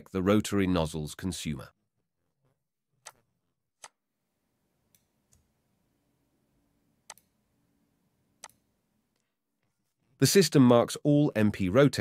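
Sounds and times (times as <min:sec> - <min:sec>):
computer mouse clicks: 0:07.0 - 0:07.3, 0:08.4 - 0:08.6.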